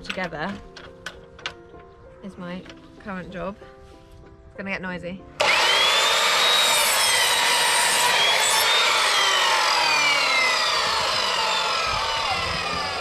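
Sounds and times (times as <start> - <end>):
mitre saw cutting timber: 5.4 - 13.0.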